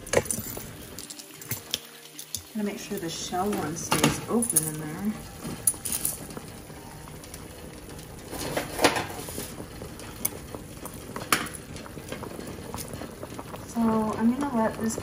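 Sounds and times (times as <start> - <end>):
water boiling in saucepan: 0.0 - 15.0
metal chains clinking against pan: 4.3 - 6.3.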